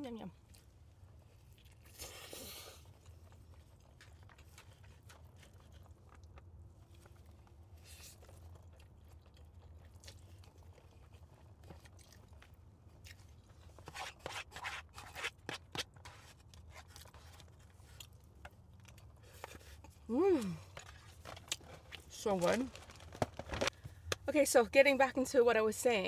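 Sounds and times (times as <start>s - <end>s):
low steady hum: 0.0s - 26.0s
person chewing: 0.4s - 13.8s, 15.6s - 22.1s
fork scraping cardboard box: 13.8s - 17.3s.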